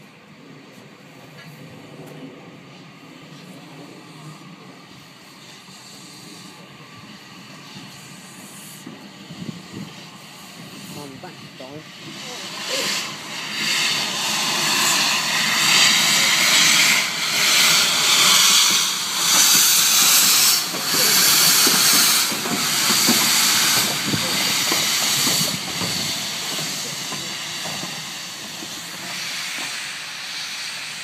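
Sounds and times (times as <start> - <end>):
steam locomotive hissing: 2.6 - 31.0
low knocks from train wheels: 17.4 - 29.8.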